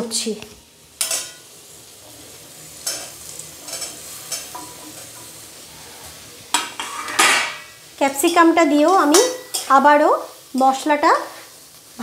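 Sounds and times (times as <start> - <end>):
vegetables sizzling in a pan: 0.0 - 12.0
steel spoon scraping a pan: 1.0 - 1.5, 2.8 - 9.9.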